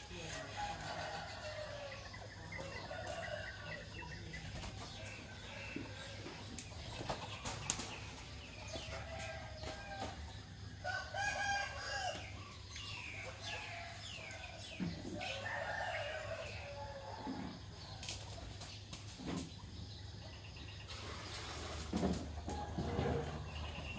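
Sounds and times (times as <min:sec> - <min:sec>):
small birds chirping: 0:00.0 - 0:23.9
rooster crowing: 0:10.8 - 0:12.4, 0:15.2 - 0:17.3.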